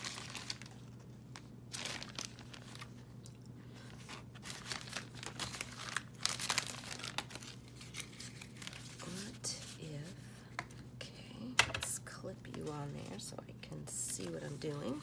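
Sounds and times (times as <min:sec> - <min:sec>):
fabric rustling and crinkling: 0:00.0 - 0:03.0, 0:03.8 - 0:09.8.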